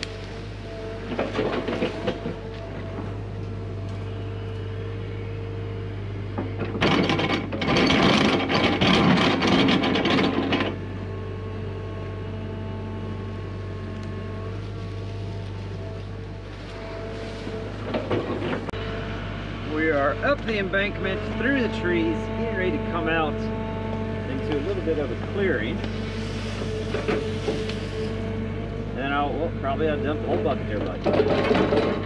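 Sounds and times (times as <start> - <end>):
excavator diesel engine running: 0.0 - 32.0
bucket scraping rocky dirt: 24.3 - 32.0.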